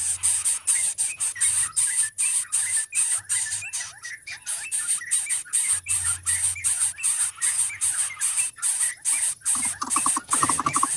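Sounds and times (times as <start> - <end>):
bird nestling hissing: 0.0 - 1.4, 9.2 - 10.9.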